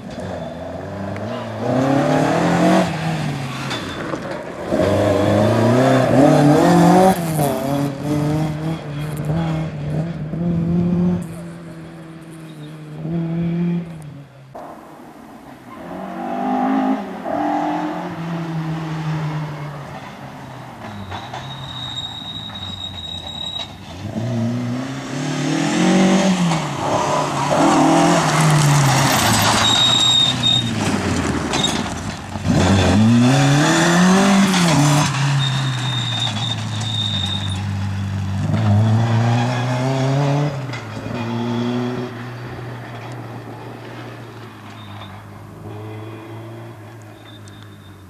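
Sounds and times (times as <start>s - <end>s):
rally car engine revving: 0.0s - 3.8s, 4.6s - 14.2s, 24.0s - 36.6s, 37.2s - 44.1s
tyres and flung gravel rushing: 26.4s - 37.9s.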